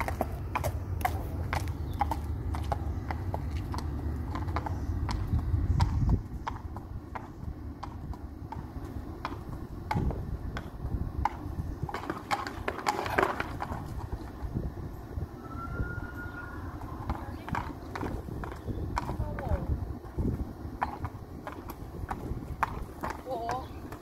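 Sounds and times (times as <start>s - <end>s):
horse hooves clip-clopping: 0.0s - 15.2s, 16.0s - 24.0s.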